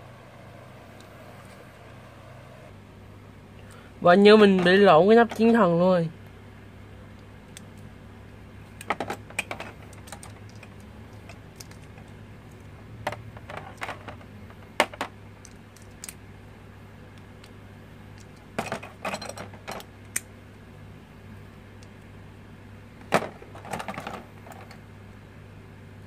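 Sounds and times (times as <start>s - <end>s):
plastic and metal parts clicking: 8.8s - 16.2s.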